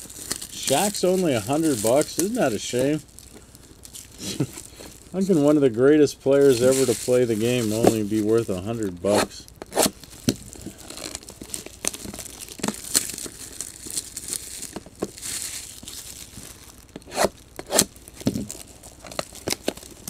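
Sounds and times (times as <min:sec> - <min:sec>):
foil wrappers crinkling and tearing: 0:00.0 - 0:20.0
cards being handled: 0:06.5 - 0:11.2.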